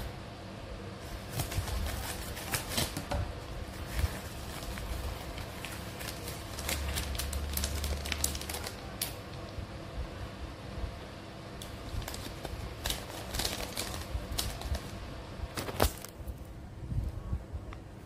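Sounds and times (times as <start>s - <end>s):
plastic packaging crinkling: 1.0s - 9.4s, 11.6s - 16.2s.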